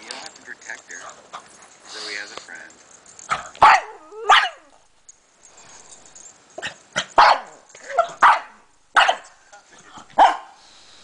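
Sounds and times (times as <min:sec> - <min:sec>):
dog barking: 0:03.3 - 0:04.7, 0:06.6 - 0:09.4, 0:10.2 - 0:10.6.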